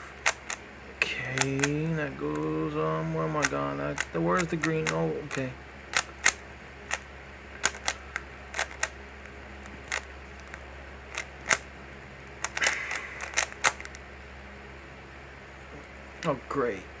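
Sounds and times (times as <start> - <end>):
puzzle cube clicking as turned: 0.1 - 0.6, 1.2 - 2.5, 3.3 - 7.0, 7.6 - 9.0, 9.6 - 11.6, 12.4 - 14.0.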